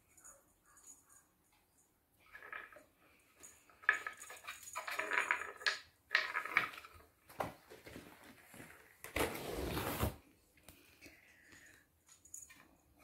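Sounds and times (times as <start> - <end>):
wooden balls rolling and clattering: 2.2 - 9.1.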